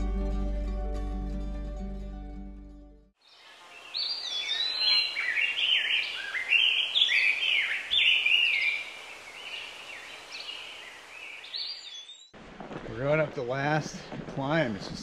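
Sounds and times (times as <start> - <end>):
plucked-string music: 0.0 - 3.0
birds singing: 3.2 - 12.4
faint outdoor hiss: 3.2 - 15.0.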